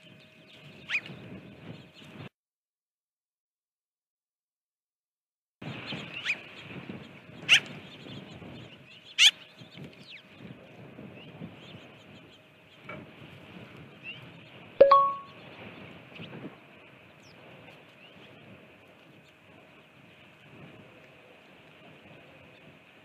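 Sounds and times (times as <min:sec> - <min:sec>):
metallic ding: 0:14.8 - 0:15.3.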